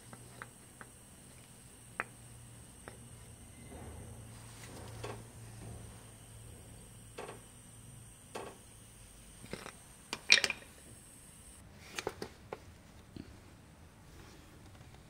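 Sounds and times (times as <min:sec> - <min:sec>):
low steady hum: 0:00.0 - 0:14.1
metal parts clattering: 0:09.4 - 0:10.8.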